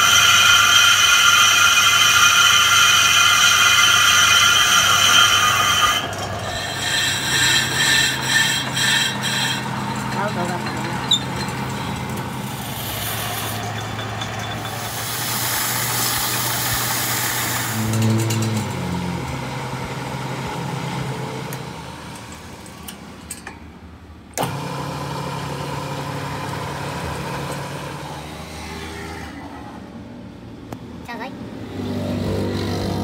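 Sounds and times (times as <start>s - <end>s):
lathe motor humming: 0.0s - 22.5s, 24.4s - 29.3s
hiss: 14.9s - 17.8s.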